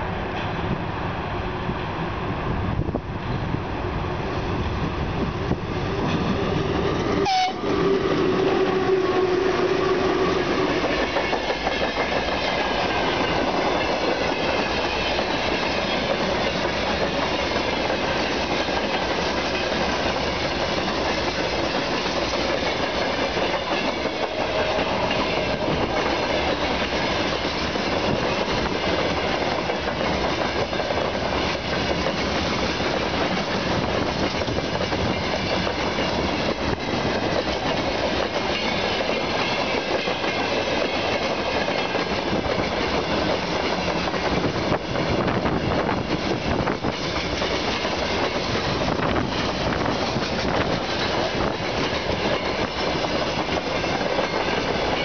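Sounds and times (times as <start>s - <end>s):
train wheels on rails: 0.0s - 55.0s
locomotive horn blast: 7.2s - 7.8s.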